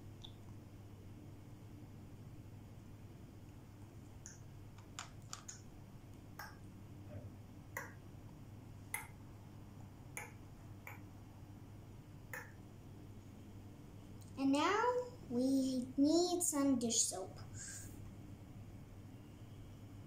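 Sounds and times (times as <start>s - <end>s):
paint tubes clicking and tapping: 4.3s - 5.6s.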